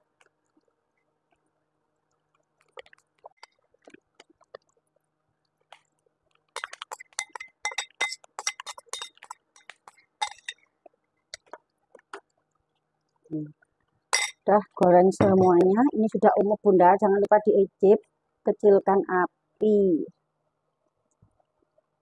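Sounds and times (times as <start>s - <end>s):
spoon clinking in ceramic bowl: 6.6s - 10.6s, 14.2s - 14.4s.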